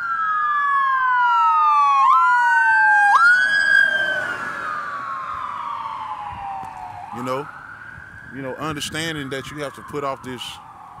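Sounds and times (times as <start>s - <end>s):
emergency siren wailing: 0.0s - 11.0s.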